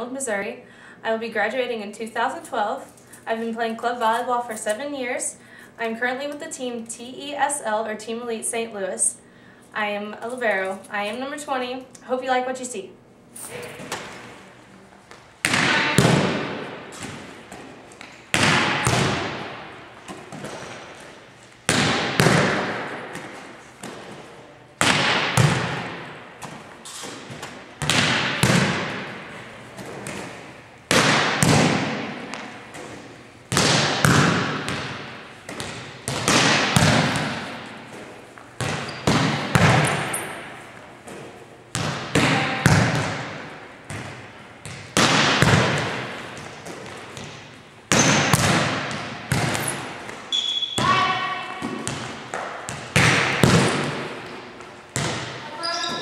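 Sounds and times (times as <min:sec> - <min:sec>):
volleyball smacks echoing: 0:15.4 - 0:21.0, 0:21.6 - 0:55.5.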